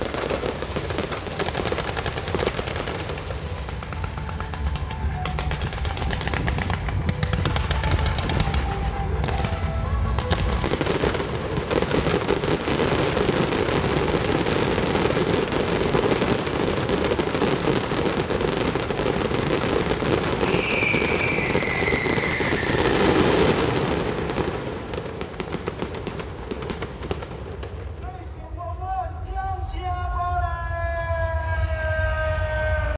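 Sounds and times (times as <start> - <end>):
fireworks low booms: 0.0 - 29.3
fireworks crackling: 0.0 - 32.9
falling whistle: 20.4 - 23.2.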